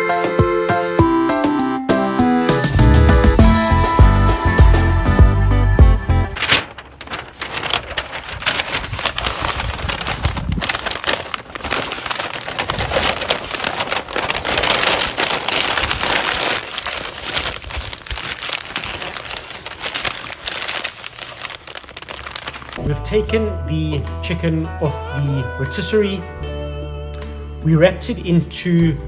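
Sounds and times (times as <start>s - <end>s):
paper crinkling and crackling: 6.4s - 22.8s.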